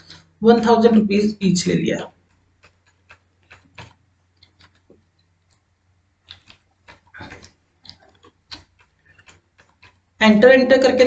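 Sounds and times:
soft keyboard key presses: 2.3 - 5.6.

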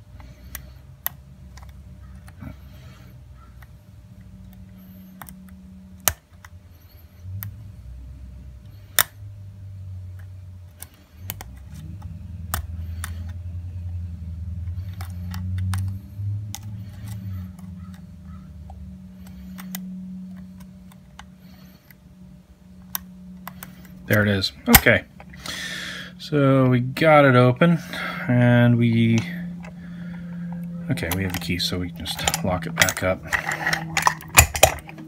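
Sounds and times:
low hum: 0.0 - 35.0
lock pick clicking in padlock: 31.0 - 35.0.

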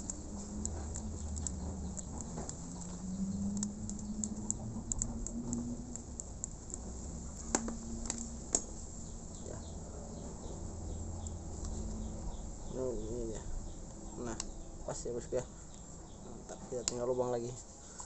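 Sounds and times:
scissors snipping: 0.0 - 6.8.

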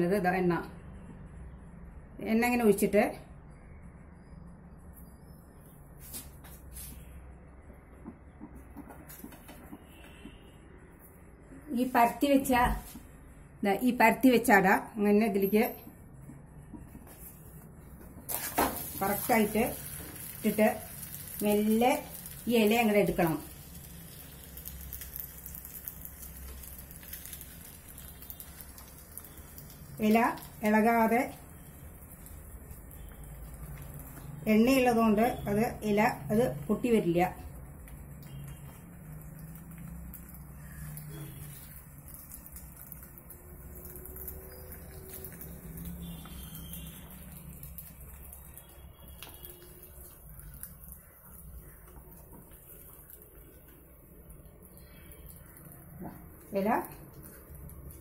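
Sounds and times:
batter sizzling on griddle: 17.2 - 58.0.

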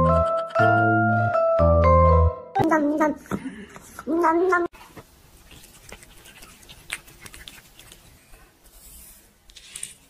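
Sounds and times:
cat licking: 5.4 - 8.4.

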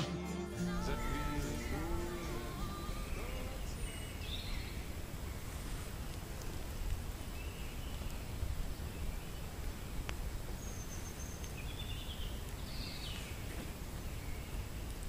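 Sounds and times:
steady low rumble: 0.0 - 7.2.

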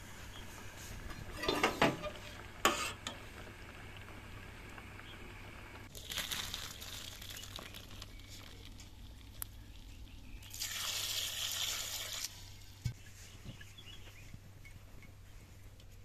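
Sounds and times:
water splashing into colander: 10.5 - 12.3.

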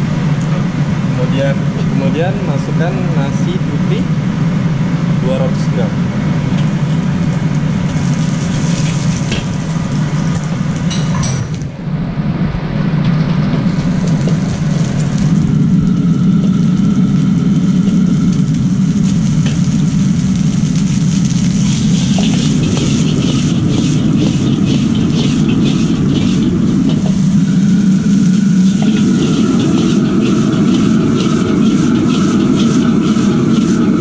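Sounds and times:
gas burner roaring: 0.0 - 34.0
ladle scraping and clinking wok: 21.2 - 34.0.

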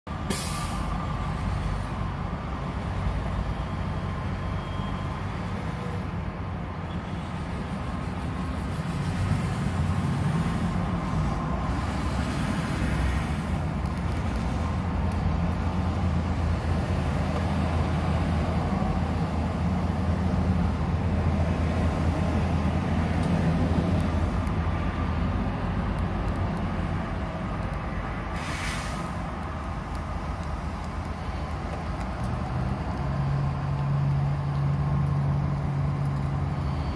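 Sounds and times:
road traffic rumble inside car: 0.1 - 36.9
semi trucks passing: 0.1 - 36.9
brief hiss: 0.3 - 0.9, 28.3 - 29.3.

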